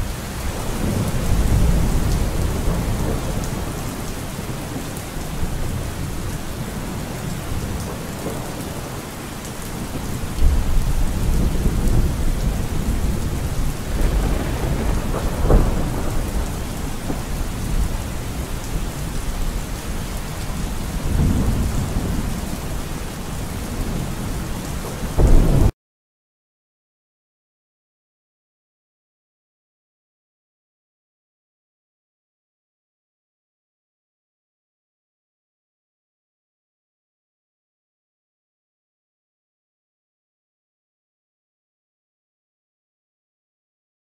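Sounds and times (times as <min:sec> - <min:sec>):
heavy rain: 0:00.0 - 0:25.8
rolling thunder: 0:00.1 - 0:09.1, 0:09.7 - 0:25.7
sharp thunderclap: 0:09.9 - 0:18.5, 0:21.0 - 0:22.5, 0:25.1 - 0:25.7.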